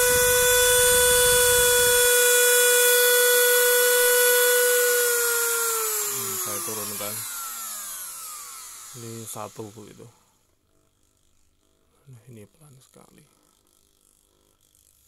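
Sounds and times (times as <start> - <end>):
rotary grinder whining: 0.0 - 10.2.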